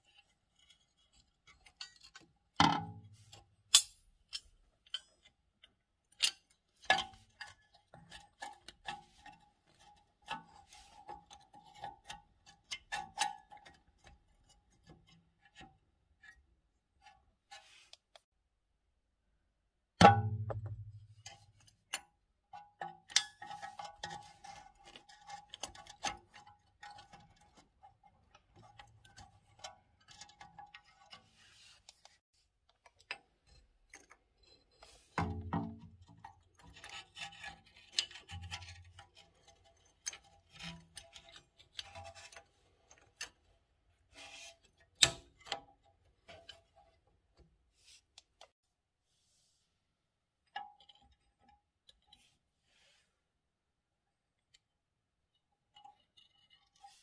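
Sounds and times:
metal clicks taps and scrapes: 0.1s - 16.4s, 20.4s - 48.5s, 50.4s - 52.4s, 54.4s - 57.0s.

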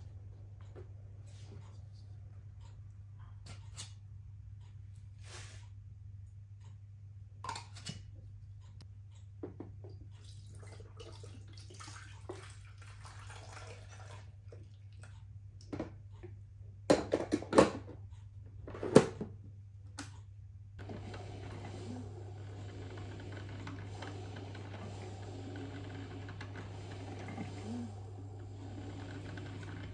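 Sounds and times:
water pouring and splashing: 10.2s - 15.0s
steady low hum: 19.6s - 29.9s.

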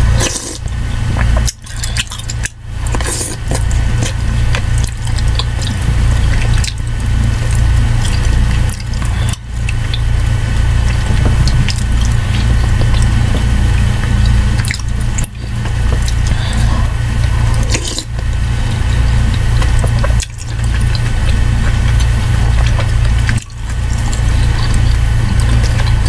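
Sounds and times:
loud low hum: 0.0s - 26.0s
slurping soup from a spoon: 0.2s - 0.6s, 2.9s - 4.2s, 16.1s - 18.2s.

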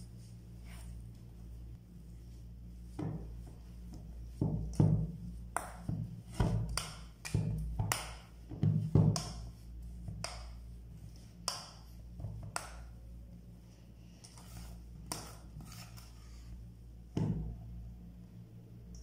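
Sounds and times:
low hum: 9.4s - 19.0s.

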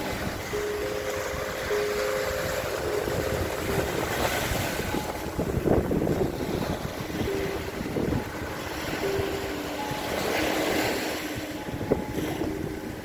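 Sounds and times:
small waves washing on sand: 0.0s - 13.0s
wind buffeting microphone: 0.0s - 13.0s.

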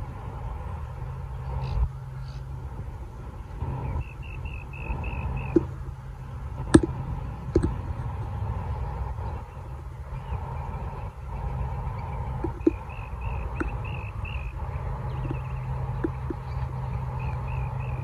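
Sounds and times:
wind rumble on microphone: 0.0s - 18.0s
bird chirping: 3.6s - 6.0s, 9.2s - 18.0s
faint clicks: 12.4s - 14.0s, 15.1s - 16.6s.

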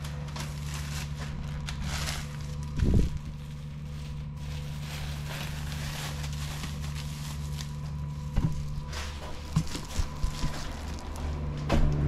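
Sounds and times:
machinery hum: 0.0s - 12.0s.

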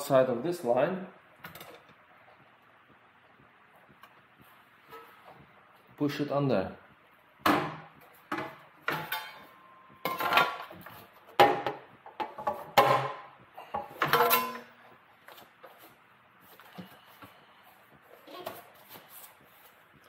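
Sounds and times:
sheet metal clanging: 8.4s - 10.7s, 14.0s - 14.8s.

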